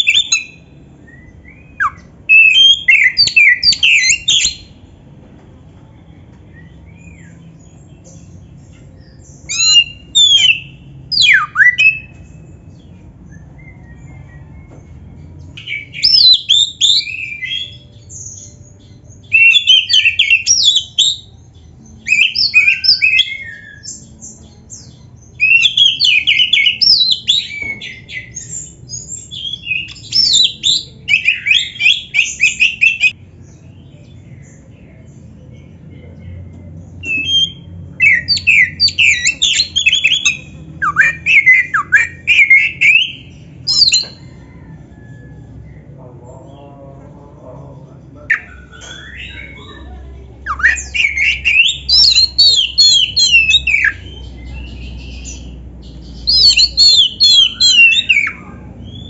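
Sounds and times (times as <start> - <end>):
bird singing whistled phrases: 0.0 - 4.7, 9.3 - 12.1, 15.6 - 18.6, 19.2 - 21.3, 22.0 - 24.1, 25.4 - 33.2, 37.0 - 45.3, 48.3 - 59.0.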